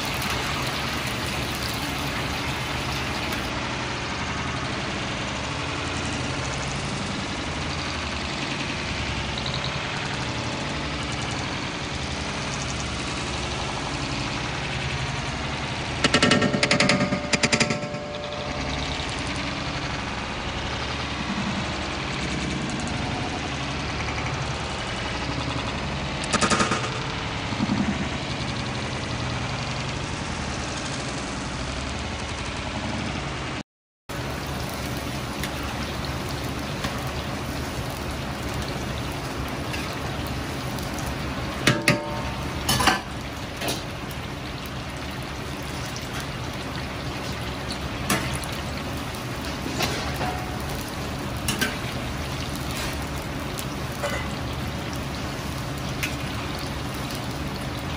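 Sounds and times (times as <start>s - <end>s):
chicken deep-frying in oil: 0.0s - 57.9s
metal ladle clinking on wok: 41.7s - 43.8s.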